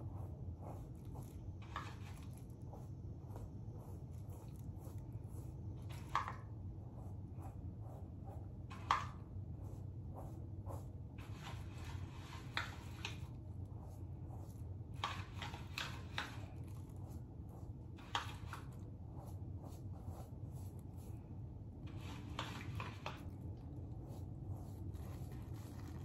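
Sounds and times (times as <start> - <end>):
low steady hum: 0.0 - 26.0
plastic glove rustling: 22.0 - 26.0.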